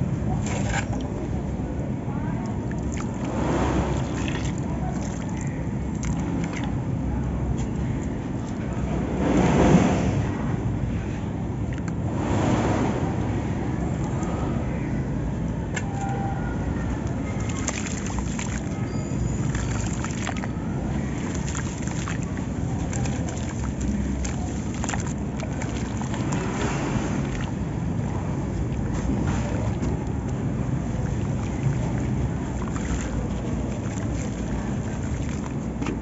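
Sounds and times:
steady low rumble: 0.0s - 36.0s
water sloshing and splashing: 0.0s - 36.0s
gritty crackles: 16.7s - 36.0s.

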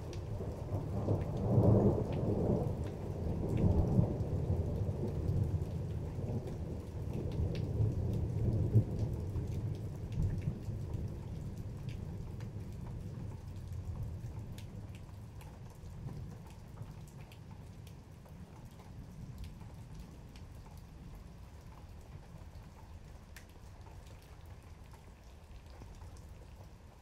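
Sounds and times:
raindrop ticks: 0.0s - 27.0s
steady rain: 0.0s - 27.0s.

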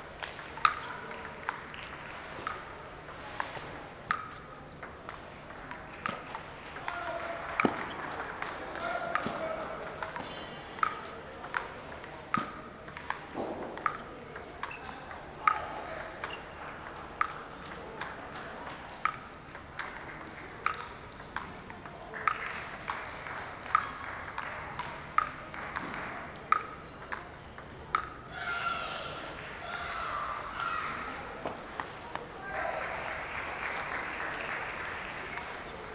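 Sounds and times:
table tennis ball clicks: 0.2s - 7.0s, 7.6s - 28.2s.

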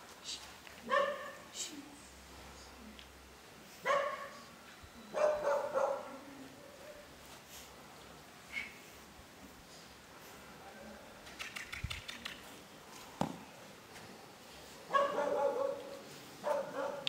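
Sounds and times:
puppy barking: 0.9s - 1.4s, 3.8s - 4.4s, 5.1s - 6.2s, 14.9s - 17.0s
ball kicked thump: 13.2s - 13.4s.

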